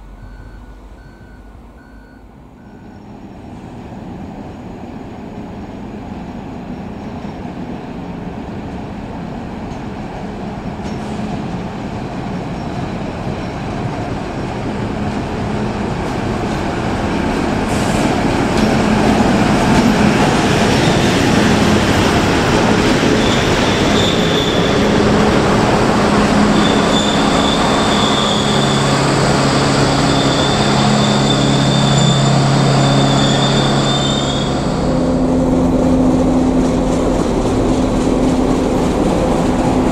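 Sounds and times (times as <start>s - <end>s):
diesel locomotive rolling past: 0.0s - 39.9s
high brake squeal: 0.1s - 3.1s, 23.2s - 24.9s, 26.3s - 35.2s.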